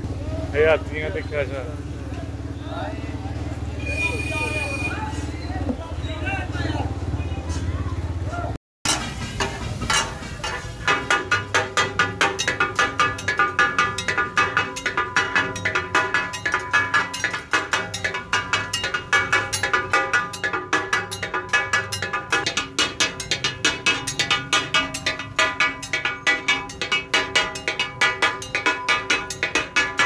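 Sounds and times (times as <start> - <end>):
metal spatulas striking iron griddle: 8.9 - 30.0.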